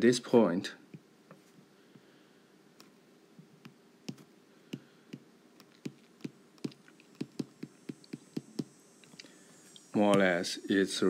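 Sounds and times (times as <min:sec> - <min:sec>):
stylus tapping on glass screen: 0:04.8 - 0:08.7.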